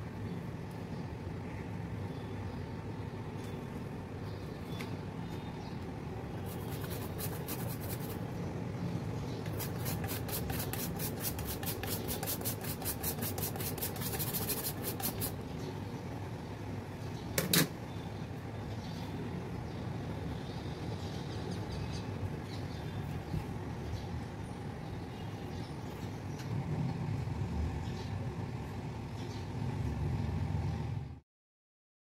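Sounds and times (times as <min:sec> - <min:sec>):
grater scraping chocolate: 0:06.5 - 0:08.2, 0:09.5 - 0:15.4.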